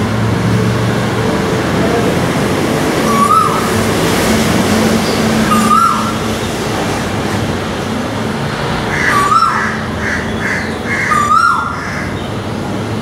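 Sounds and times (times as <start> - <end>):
road traffic noise: 0.0 - 13.0
koel whistled call: 3.0 - 3.7, 5.5 - 6.2, 10.5 - 11.8.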